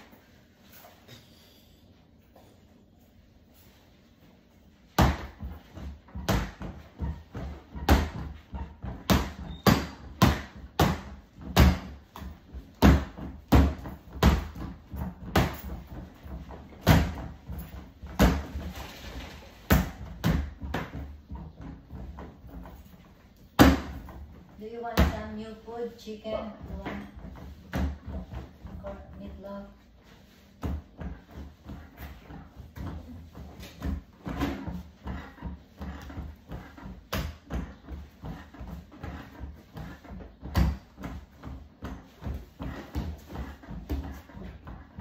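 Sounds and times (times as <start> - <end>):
toy bat thudding punching bag: 5.0 - 18.7, 23.5 - 24.2.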